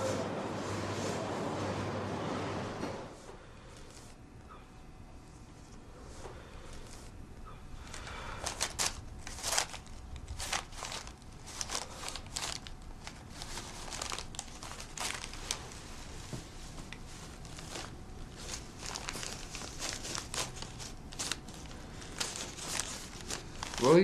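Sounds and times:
crinkling and rustling: 0:07.8 - 0:24.0.

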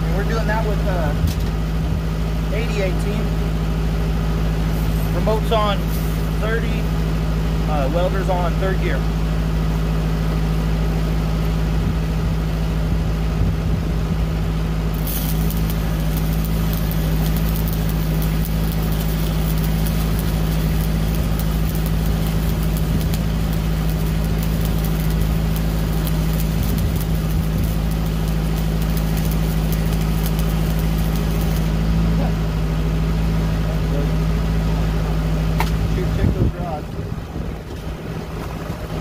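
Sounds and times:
welder engine running: 0:00.0 - 0:39.0
welding arc crackling: 0:04.5 - 0:08.9, 0:14.9 - 0:32.1.

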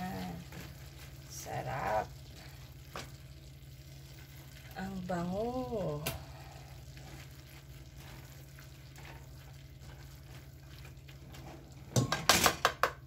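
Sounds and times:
food sizzling in a pan: 0:00.0 - 0:12.2
spatula scraping: 0:06.8 - 0:11.9.

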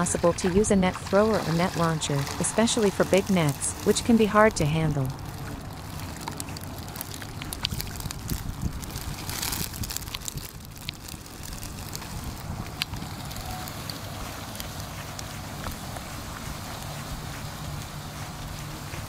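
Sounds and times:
wind buffeting the microphone: 0:00.0 - 0:19.0.

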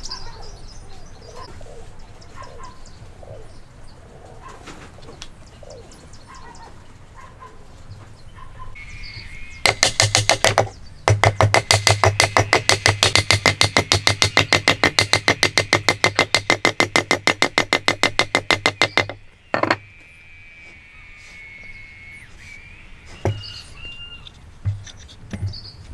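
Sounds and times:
rapid even knocking: 0:09.6 - 0:19.8.

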